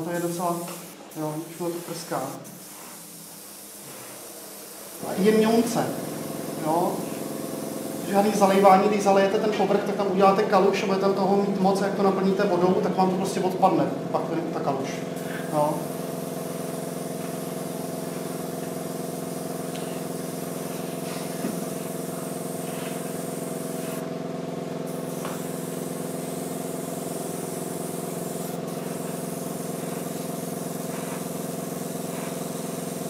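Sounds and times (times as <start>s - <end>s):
airbrush spraying hiss: 0.0s - 9.2s, 15.1s - 24.2s, 24.9s - 33.0s
air compressor humming: 0.0s - 33.0s.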